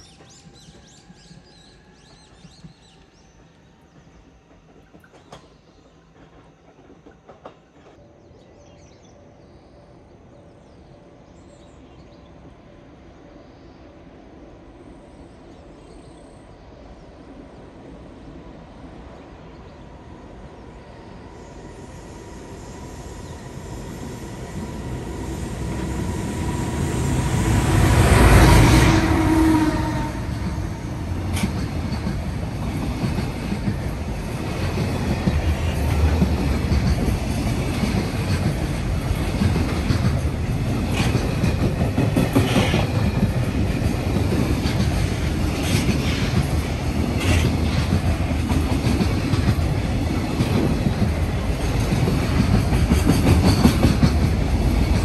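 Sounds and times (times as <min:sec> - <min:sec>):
train wheels clickety-clack: 0:00.0 - 0:08.1, 0:25.5 - 0:55.0
electric locomotive passing: 0:00.0 - 0:55.0.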